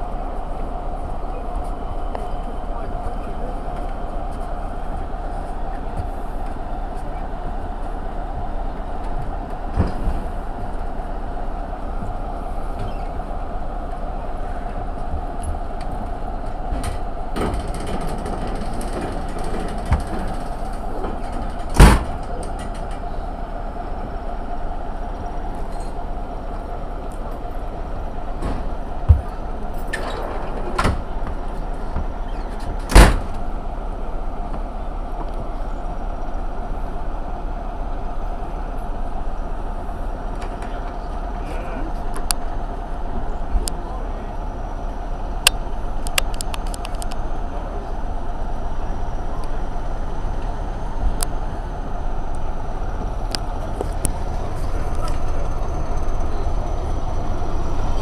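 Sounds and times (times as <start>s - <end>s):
train running hum: 0.0s - 58.0s
wheels knocking on rail joints: 16.5s - 23.0s.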